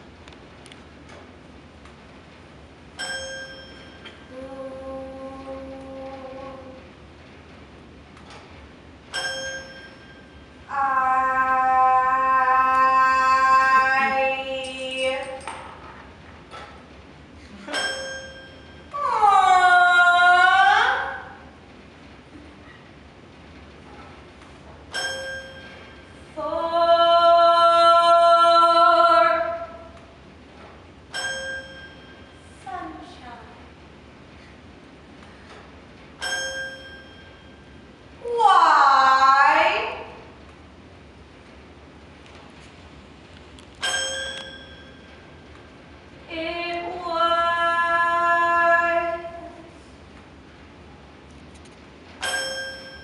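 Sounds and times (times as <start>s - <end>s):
woman singing a long note: 4.3s - 6.8s, 10.7s - 15.5s, 19.0s - 21.4s, 26.4s - 29.8s, 46.3s - 49.7s.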